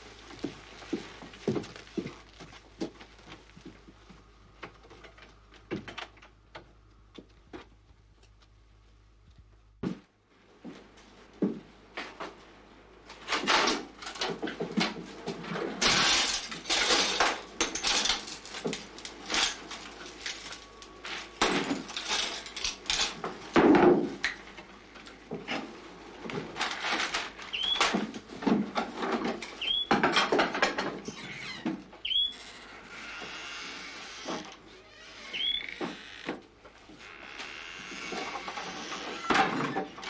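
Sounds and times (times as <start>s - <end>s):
objects knocking and bumping: 13.3s - 31.9s.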